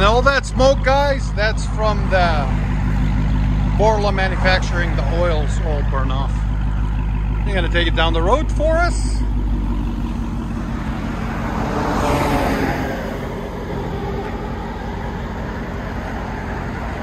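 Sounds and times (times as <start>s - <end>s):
car driving past: 9.2s - 17.0s.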